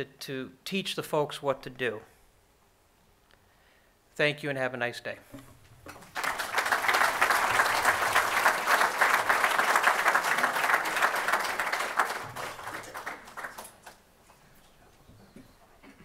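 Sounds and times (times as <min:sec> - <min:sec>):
audience applauding: 0:05.9 - 0:14.0.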